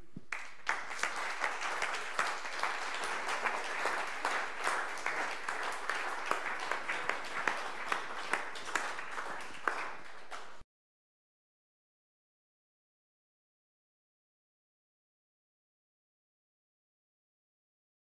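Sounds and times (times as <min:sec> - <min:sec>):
audience applauding: 0:00.3 - 0:10.6.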